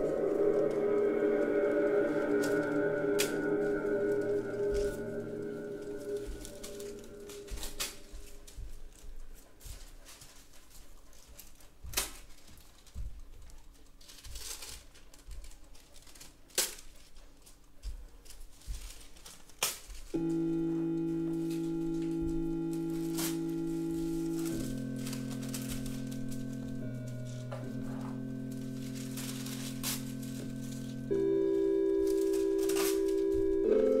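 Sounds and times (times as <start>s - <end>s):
scattered crackles: 0.0s - 9.0s, 11.4s - 34.0s
steady held chord: 0.0s - 9.5s, 20.2s - 34.0s.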